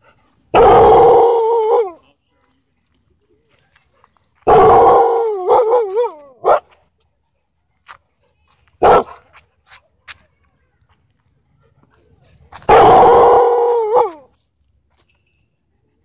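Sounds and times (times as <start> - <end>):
husky howl-talking: 0.5 - 2.0, 4.5 - 6.4, 12.7 - 14.3
dog barking: 4.5 - 6.8, 8.8 - 9.2, 12.6 - 14.2.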